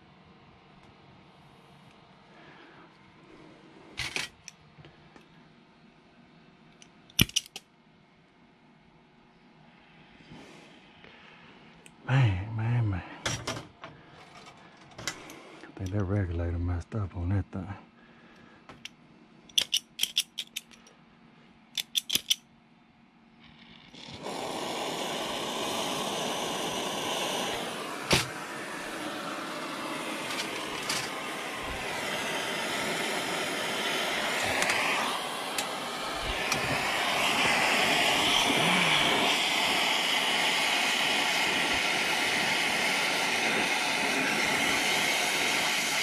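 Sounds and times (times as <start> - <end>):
compressed gas hissing: 14.0 - 16.1, 23.5 - 46.0.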